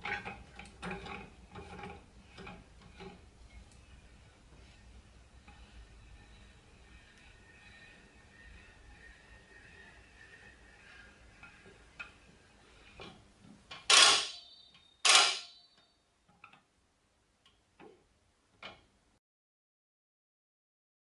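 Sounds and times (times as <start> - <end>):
torque limiter metallic clicks: 13.8 - 15.6
loud metallic clacks ringing: 13.8 - 15.8.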